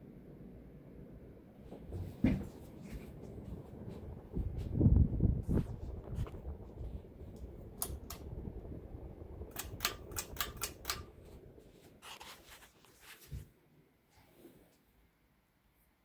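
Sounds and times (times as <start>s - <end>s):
ceiling fan running: 0.0s - 15.2s
sharp clicks: 7.3s - 8.4s, 9.4s - 11.4s.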